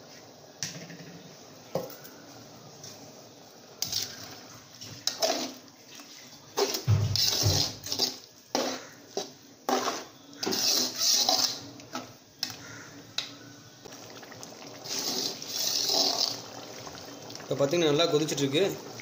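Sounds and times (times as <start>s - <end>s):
metal ladle scraping a pot: 3.8s - 4.4s, 5.0s - 5.6s, 6.6s - 12.0s, 14.8s - 16.5s.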